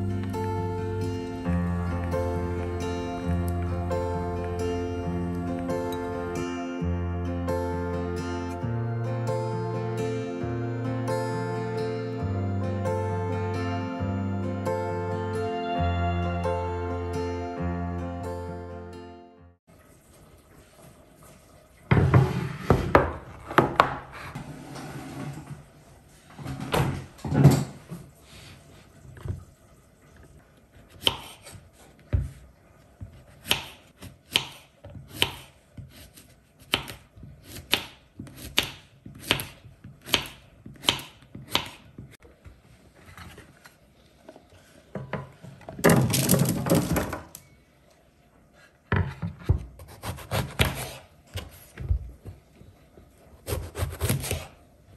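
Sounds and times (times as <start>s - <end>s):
board and vegetables clattering: 45.0s - 47.4s
slices scraped off board: 53.5s - 54.5s.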